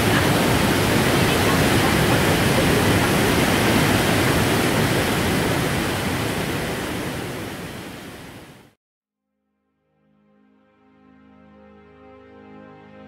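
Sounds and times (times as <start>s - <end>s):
rushing mountain stream: 0.0s - 8.8s.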